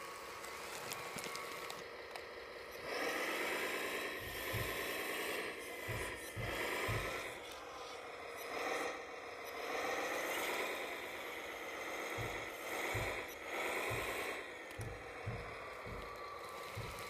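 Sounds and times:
electric motor whining: 0.0 - 17.0
dull low thumps: 4.2 - 7.5, 11.7 - 17.0.

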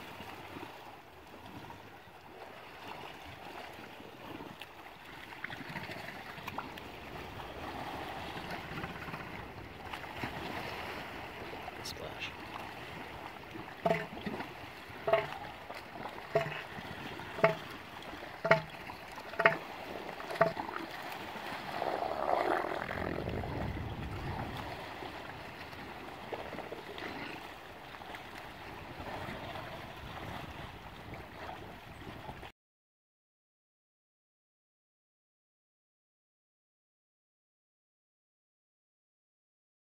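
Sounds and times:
wind and water: 0.0 - 32.5
elephant seal pulsed threat call: 13.8 - 15.6, 16.2 - 20.7.

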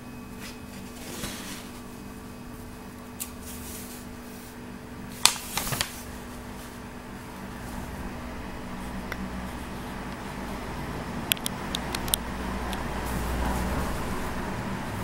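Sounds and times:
faint steady hum: 0.0 - 15.0
magazine page rustling: 5.2 - 6.9.

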